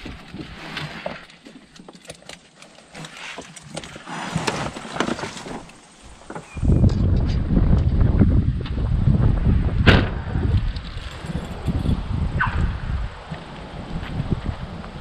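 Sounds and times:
fishing gear rustling: 0.0 - 6.6.

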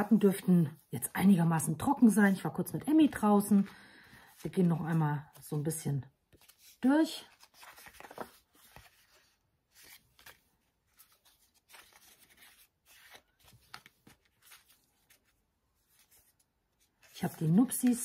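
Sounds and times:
paper cards rustling: 6.3 - 18.0.

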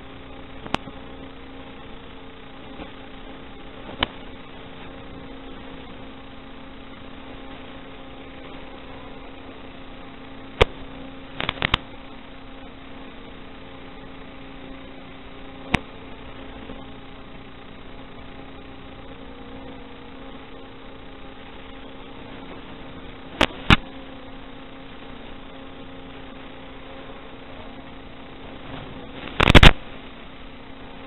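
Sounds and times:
electrical hum: 0.0 - 31.0
sharp clicks: 11.4 - 11.9, 23.4 - 23.8.

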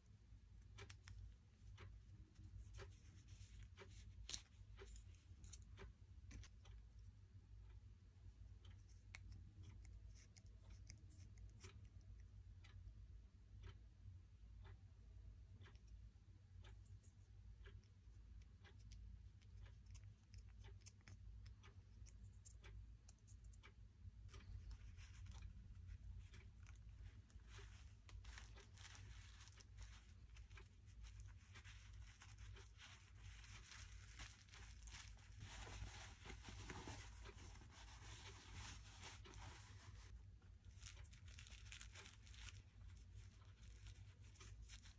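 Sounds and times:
low steady hum: 0.0 - 44.9
cloth rubbing between fingers: 31.1 - 40.2.

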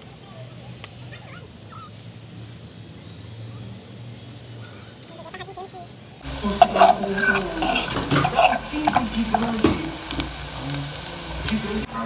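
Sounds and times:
utensil scraping a pot: 6.2 - 11.9
food sizzling in oil: 6.2 - 12.0.

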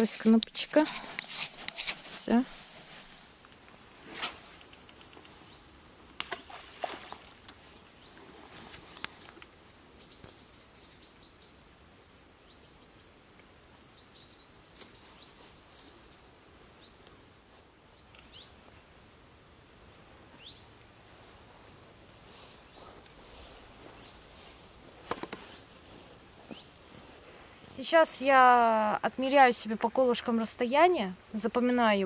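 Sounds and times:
faint steady hiss: 0.0 - 32.0
birds chirping: 8.9 - 13.2
handling clicks and knocks: 25.0 - 25.5.

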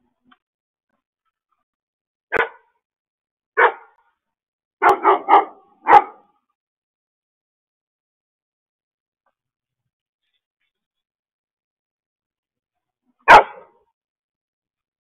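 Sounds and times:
dog barking: 2.3 - 2.7, 3.6 - 4.0, 4.8 - 6.4, 13.2 - 13.9.

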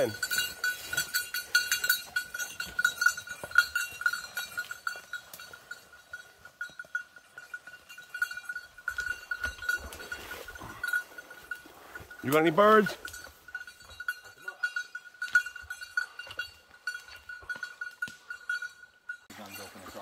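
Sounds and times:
dog collar bell jingling: 0.0 - 20.0.

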